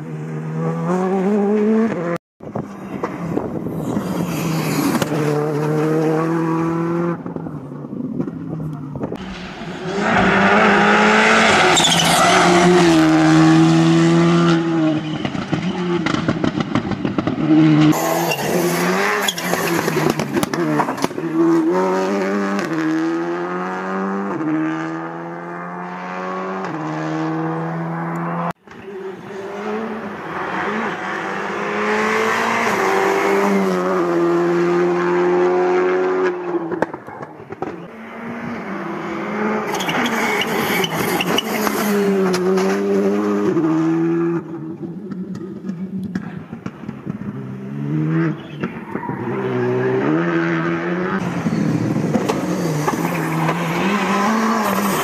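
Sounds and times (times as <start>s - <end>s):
rally car engines accelerating: 0.0s - 55.0s
tyre noise: 14.6s - 22.8s, 39.6s - 42.9s.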